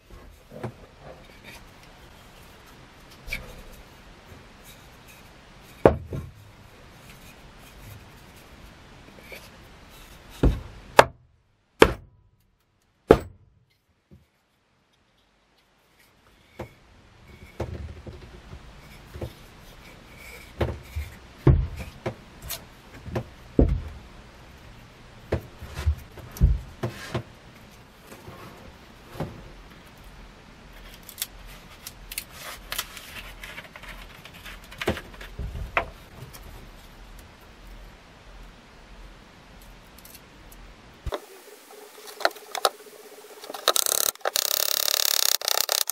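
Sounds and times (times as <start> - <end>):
plastic bottle and cap rattling: 43.5 - 45.9.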